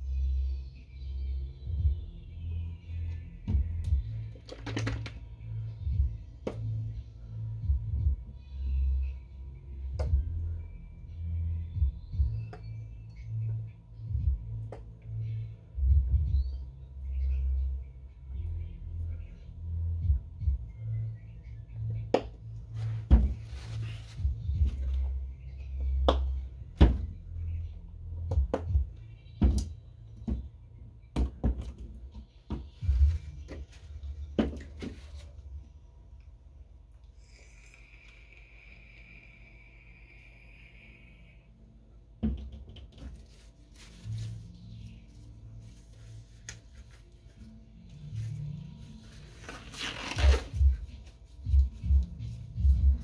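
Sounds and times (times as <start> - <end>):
low bass notes: 0.0 - 35.8, 47.4 - 53.0
double kick-drum beat: 1.7 - 2.1, 3.5 - 4.1, 5.8 - 6.3, 7.6 - 8.3, 11.8 - 12.4, 14.1 - 14.5, 15.8 - 16.5, 20.0 - 20.7, 24.2 - 24.9, 28.4 - 29.7, 51.5 - 53.0.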